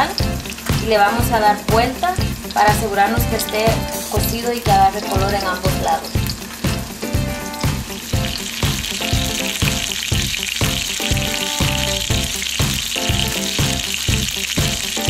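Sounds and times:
background music with steady beat: 0.0s - 15.0s
pork sizzling in a frying pan: 0.0s - 15.0s.

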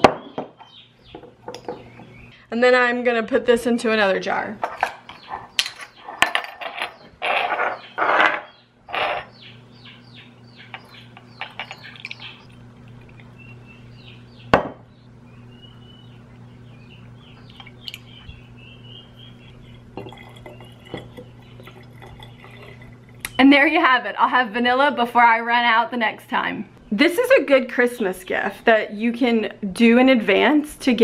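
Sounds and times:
glass bottles clinking: 10.8s - 13.3s, 19.8s - 23.2s
liquid glugging and trickling: 10.8s - 13.9s, 19.5s - 23.4s
glass knocking on counter: 14.5s - 14.8s.

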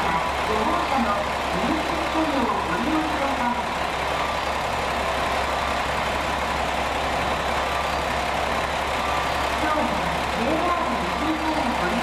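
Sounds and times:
railcar diesel engines humming: 0.0s - 12.0s.

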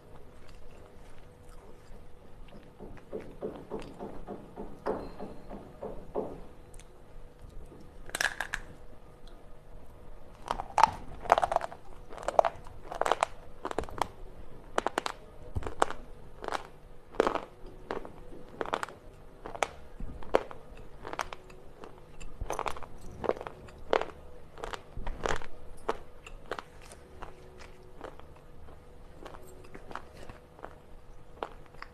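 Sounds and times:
chewing dry crunches: 0.0s - 2.8s, 10.4s - 31.9s.

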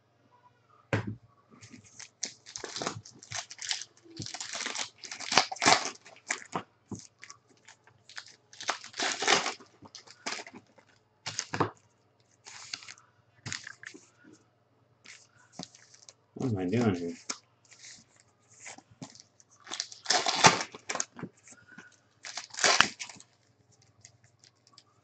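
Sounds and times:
foil wrapper tearing and crinkling: 1.8s - 10.6s, 12.5s - 13.9s, 19.1s - 21.2s, 22.2s - 23.4s.

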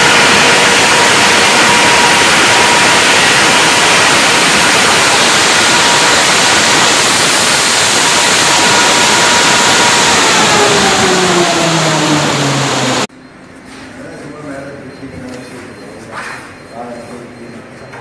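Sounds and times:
diesel generator roaring: 0.0s - 13.1s.

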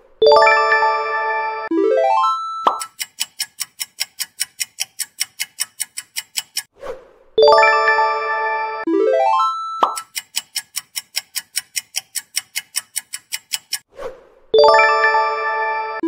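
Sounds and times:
bright ringing chime chord: 0.2s - 2.6s, 7.4s - 9.8s, 14.6s - 16.0s
countdown timer ticking: 0.2s - 6.7s, 7.4s - 13.9s, 14.6s - 16.0s
rising run of chime notes: 7.4s - 9.8s, 14.6s - 16.0s.

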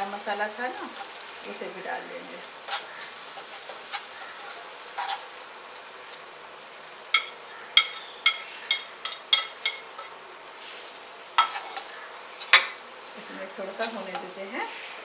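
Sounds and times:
paste sizzling in oil: 0.0s - 15.0s
spoon clinking on pan: 7.1s - 10.1s.

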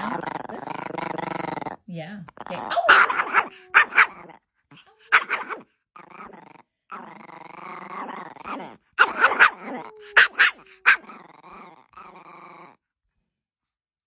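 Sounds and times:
small dog growling: 0.0s - 12.9s
small dog barking: 2.6s - 4.3s, 5.0s - 5.7s, 8.5s - 11.2s.

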